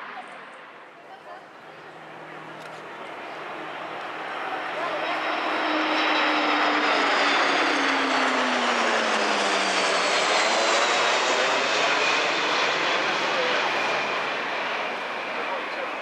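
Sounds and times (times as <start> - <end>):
jet aircraft rumble and whine: 0.0 - 16.0.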